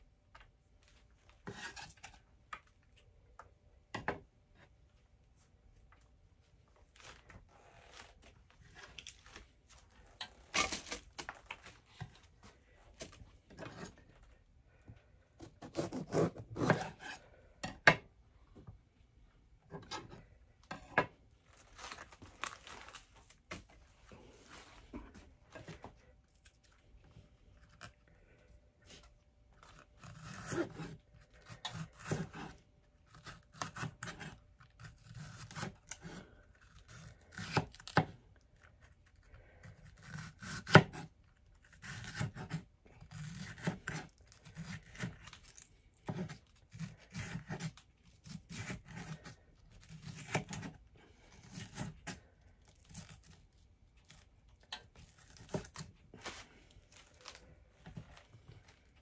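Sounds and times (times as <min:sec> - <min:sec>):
knife slicing pepper on board: 0:15.4 - 0:17.2.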